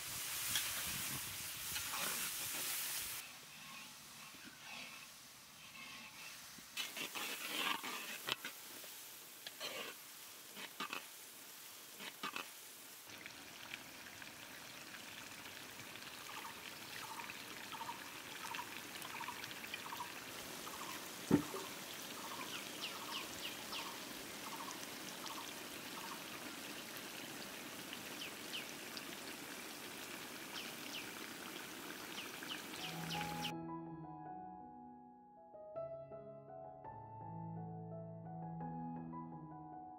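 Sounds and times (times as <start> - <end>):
spatula scraping a wok: 1.7 - 8.7, 9.4 - 11.2, 11.9 - 12.5
sauce bubbling and popping: 21.1 - 22.1.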